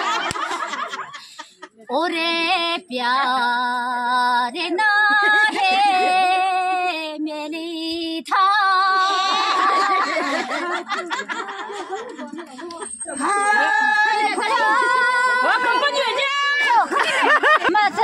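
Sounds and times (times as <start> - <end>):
other voices overlapping: 8.7 - 18.0.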